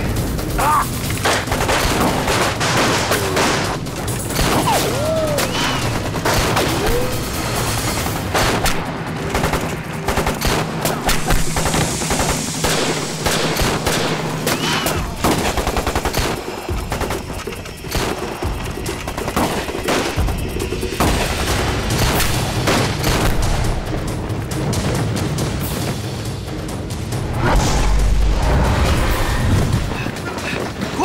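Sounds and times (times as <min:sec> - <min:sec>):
rifle gunfire: 0:01.2 - 0:18.3.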